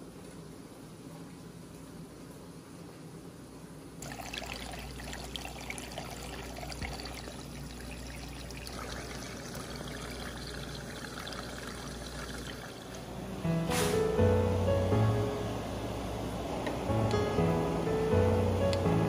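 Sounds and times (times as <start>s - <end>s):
water pouring into aquarium: 4.0s - 13.0s.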